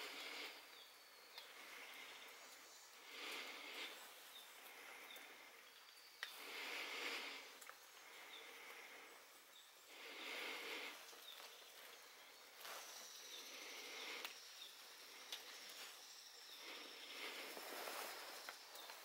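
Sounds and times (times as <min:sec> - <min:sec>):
fingers rustling leaves: 0:16.7 - 0:19.0.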